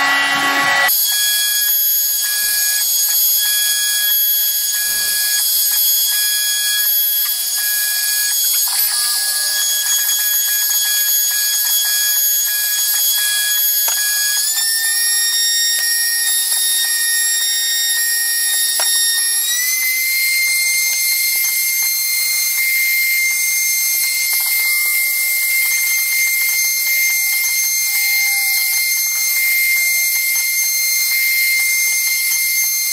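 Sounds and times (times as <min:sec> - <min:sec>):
router spindle whining: 0:00.0 - 0:01.6, 0:04.4 - 0:32.9.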